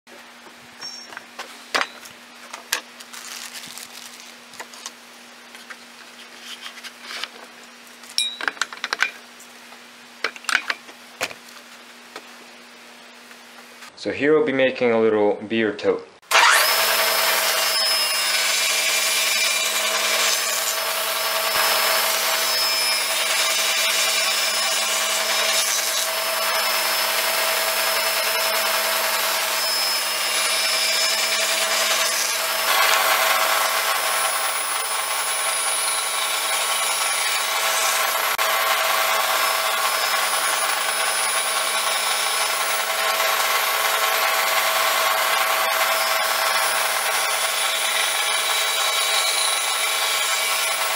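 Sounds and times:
table saw cutting wood: 16.2 - 50.9.

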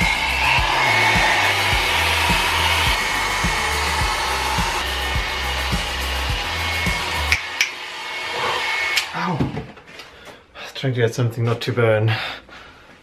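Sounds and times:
background music with bass beat: 0.0 - 7.4
hair dryer running: 0.0 - 9.6.

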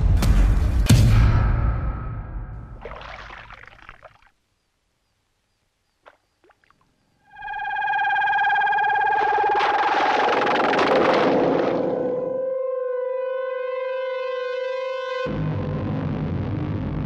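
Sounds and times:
wobbling electronic tone: 7.2 - 11.0.

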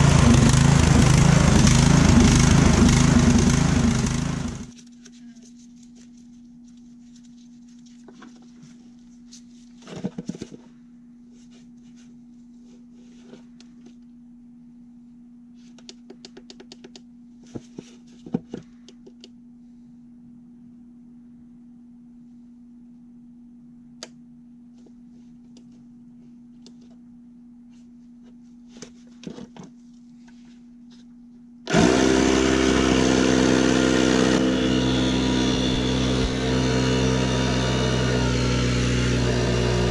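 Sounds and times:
air pump motor running: 0.0 - 4.8, 31.7 - 39.9
faint steady hum: 4.7 - 31.7.

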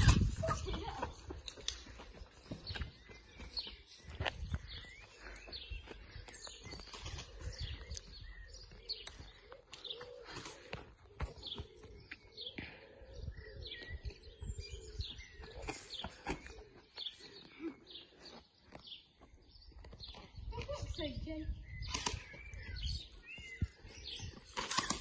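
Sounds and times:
wind rumble on microphone: 0.0 - 1.4, 4.1 - 4.9, 13.2 - 15.6, 20.2 - 24.5
small birds chirping: 0.0 - 25.0
sharp clicks: 21.9 - 22.4.

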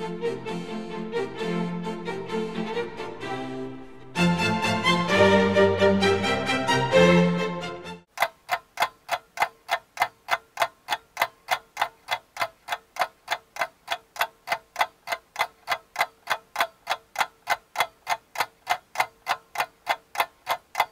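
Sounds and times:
violin-led orchestral music: 0.0 - 8.0
steady ticking: 8.1 - 20.9.

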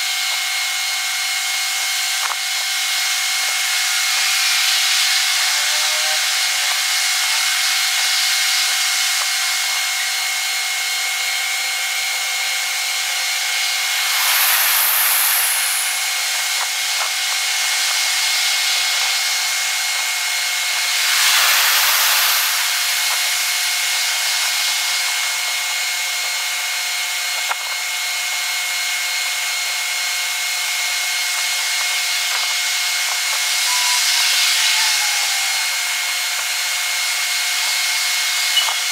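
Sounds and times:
steady hiss: 1.8 - 27.8
faint high tones: 33.6 - 36.0.

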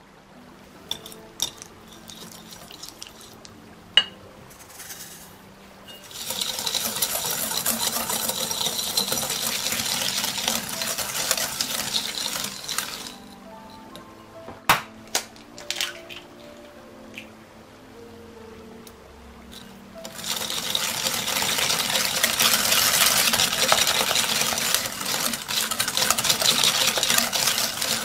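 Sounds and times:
whisk scraping glass bowl: 0.9 - 3.5, 5.9 - 13.8, 19.6 - 28.0.

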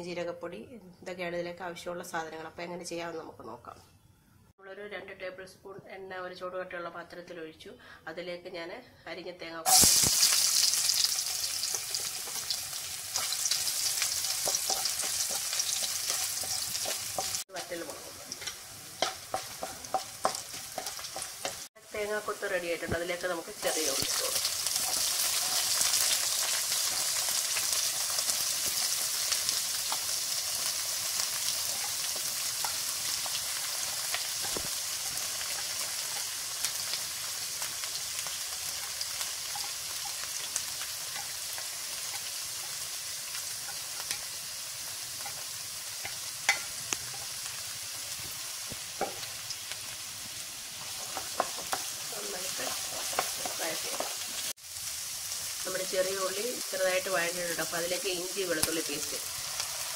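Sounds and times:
food sizzling in hot oil: 9.6 - 59.9
spoon scraping pan: 13.2 - 21.7, 38.2 - 47.7, 50.7 - 54.4.

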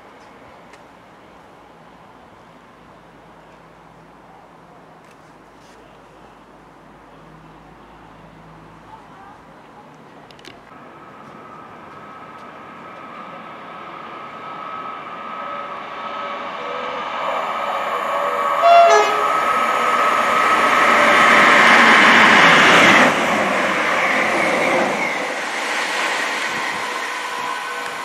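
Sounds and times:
train passing at speed: 10.8 - 28.0
train horn blast: 18.4 - 19.6.

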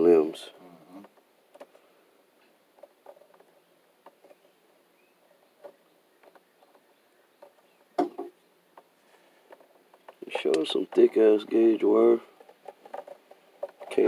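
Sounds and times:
wire ends twisting clicks and rustles: 1.0 - 4.5, 8.7 - 14.0.

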